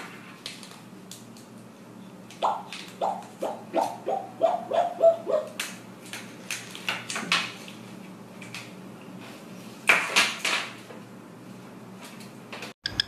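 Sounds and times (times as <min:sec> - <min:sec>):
parrot calls: 0:02.4 - 0:05.6.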